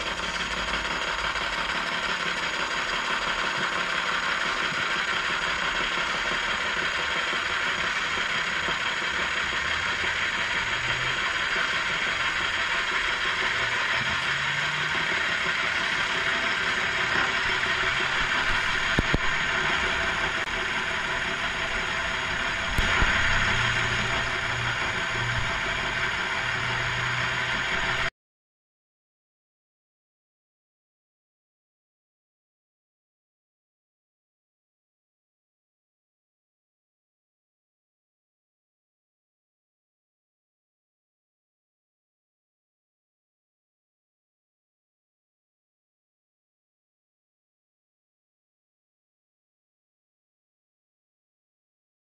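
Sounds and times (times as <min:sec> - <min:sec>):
cutter hissing through metal: 0:00.0 - 0:28.1
milling machine drone: 0:00.0 - 0:28.1.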